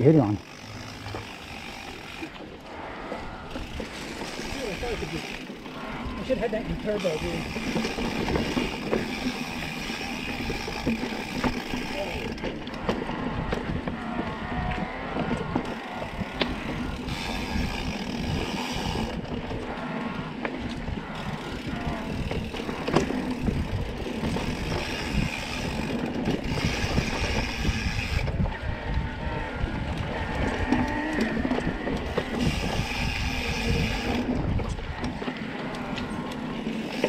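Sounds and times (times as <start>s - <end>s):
bike rattling: 0.0s - 37.0s
tyres rumbling on dirt trail: 0.0s - 37.0s
wind buffeting microphone: 0.6s - 37.0s.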